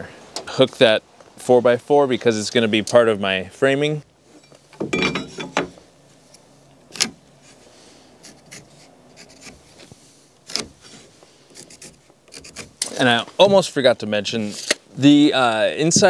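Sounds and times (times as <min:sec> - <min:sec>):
rustle: 0:00.0 - 0:16.0
pencil scratching on wood: 0:08.2 - 0:09.6, 0:11.6 - 0:12.7.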